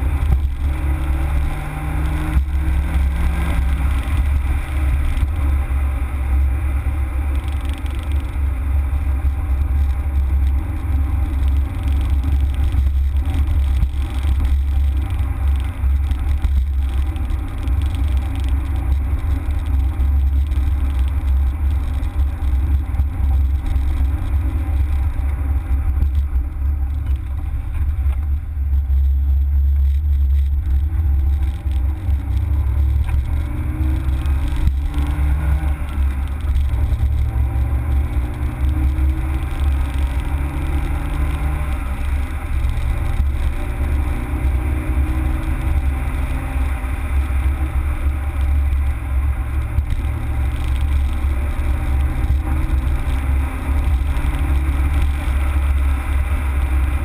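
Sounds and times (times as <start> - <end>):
car engine accelerating: 0.0 - 57.0
road and cabin rumble: 0.0 - 57.0.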